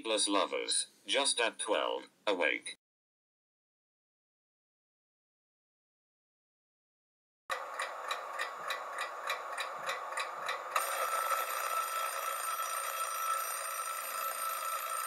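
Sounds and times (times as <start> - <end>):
alarm clock ticking: 7.5 - 15.0
alarm ringing: 8.6 - 15.0.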